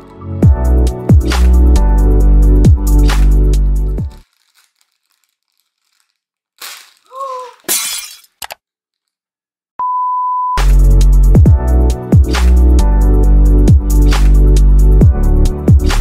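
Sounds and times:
music: 0.0s - 4.2s, 10.6s - 16.0s
plastic bag tearing and rustling: 4.1s - 8.4s
high one-pitch bleep: 9.8s - 10.6s.

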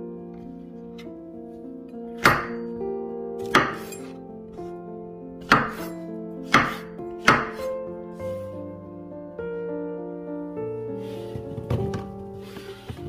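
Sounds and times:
soft background music: 0.0s - 13.0s
knife chopping on wooden board: 3.4s - 4.0s, 5.4s - 5.9s, 6.5s - 7.7s.

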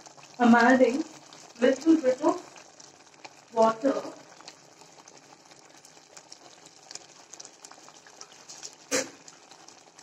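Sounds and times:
gravy bubbling in pot: 0.0s - 10.0s.

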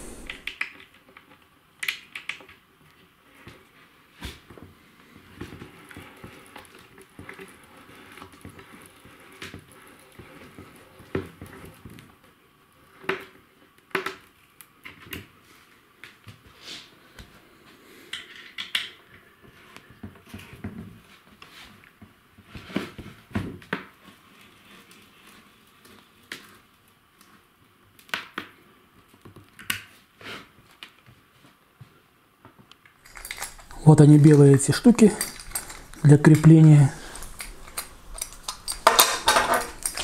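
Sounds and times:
light metal clinks: 33.0s - 40.0s.

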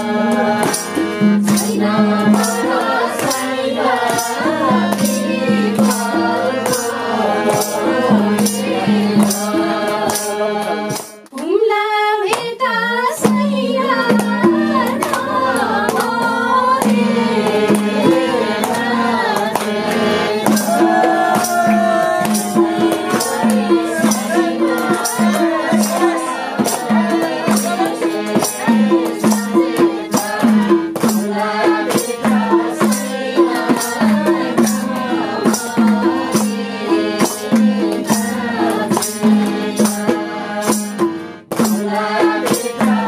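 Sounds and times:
percussion and jingles: 0.3s - 11.3s, 20.4s - 43.0s
person singing: 12.8s - 40.6s.

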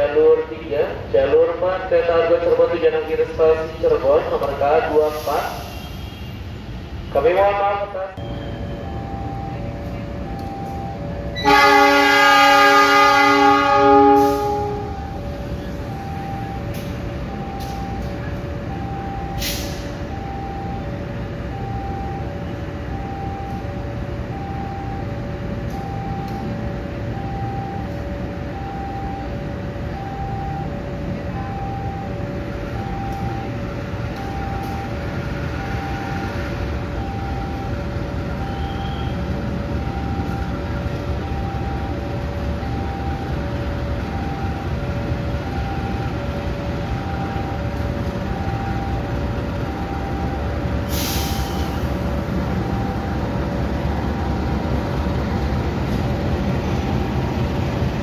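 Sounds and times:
diesel locomotive rumbling: 0.0s - 58.0s
two-note electronic beep: 8.2s - 9.6s, 38.4s - 39.2s.

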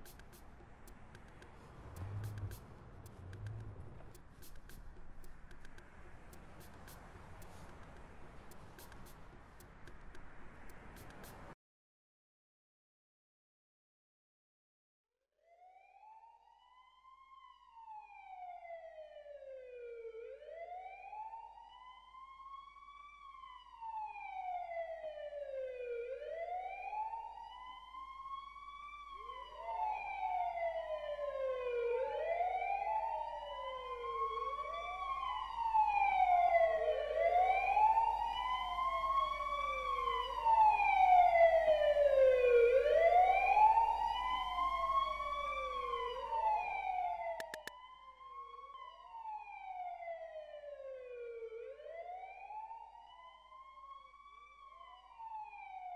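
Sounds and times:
police sirens wailing: 0.0s - 11.5s, 16.7s - 55.9s.

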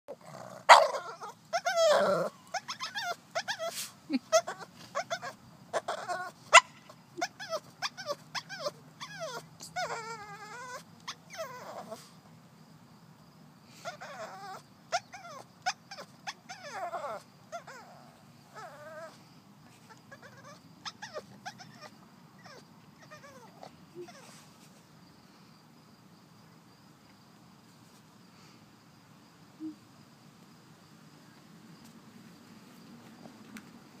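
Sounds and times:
dog whining: 0.1s - 6.6s, 7.2s - 12.0s, 13.8s - 19.2s, 19.9s - 24.5s.

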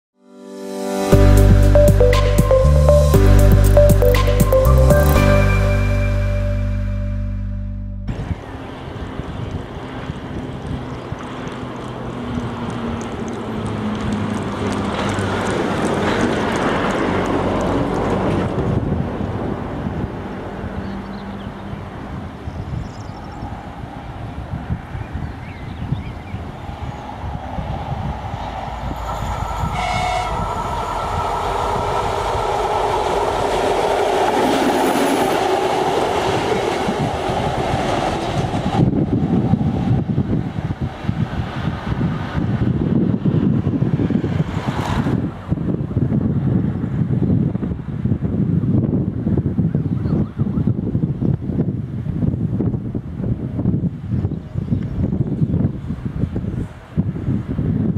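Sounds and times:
diesel locomotive engine drone: 1.1s - 25.2s, 26.2s - 49.4s
wind noise on microphone: 8.1s - 57.9s
high horn toot: 29.0s - 31.4s.

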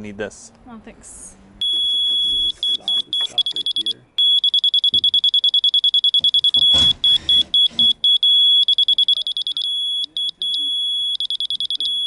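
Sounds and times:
rapid high-pitched beeping: 1.6s - 12.0s.

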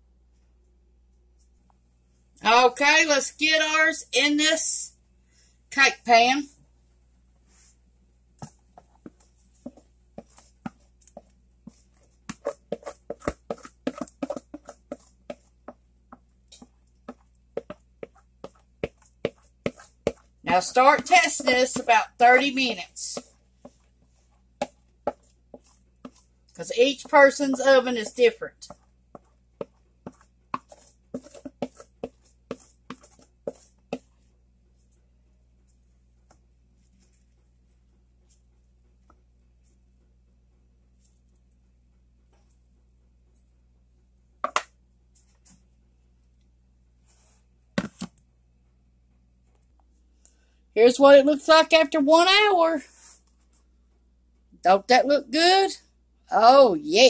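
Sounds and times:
batter scraping from bowl: 11.7s - 15.4s, 30.1s - 34.1s.

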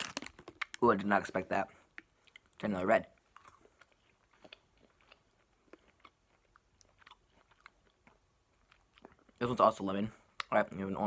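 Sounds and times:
chewing gummy candy: 0.0s - 0.9s, 1.9s - 9.5s.

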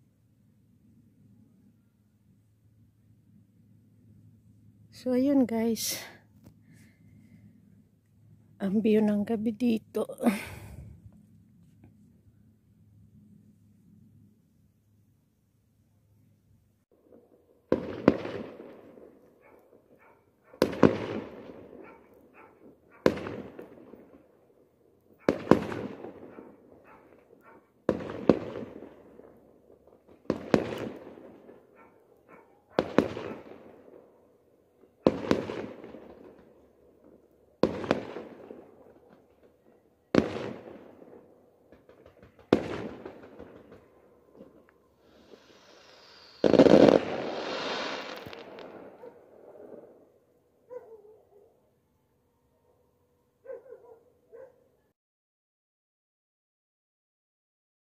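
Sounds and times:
fireworks bangs: 17.0s - 24.3s, 25.2s - 31.8s, 32.7s - 34.1s, 35.0s - 50.1s.

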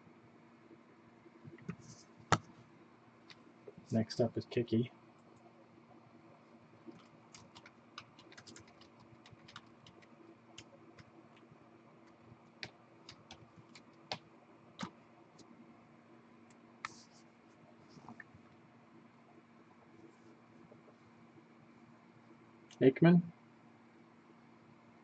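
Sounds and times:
typing on a keyboard: 6.9s - 15.5s.

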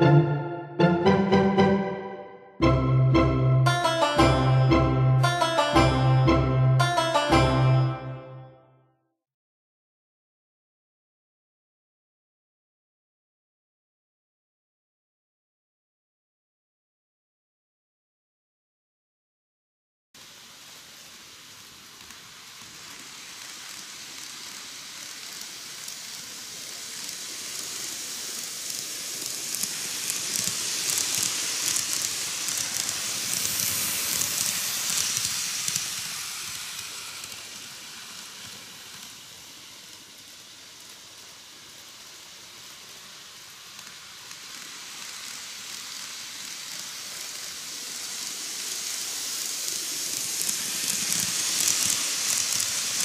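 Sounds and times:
model train whirring on track: 20.2s - 53.0s.

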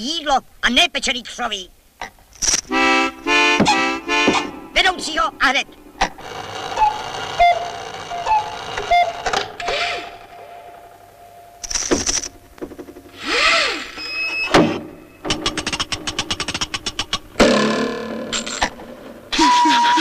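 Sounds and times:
rapid clattering clicks: 15.3s - 17.5s.

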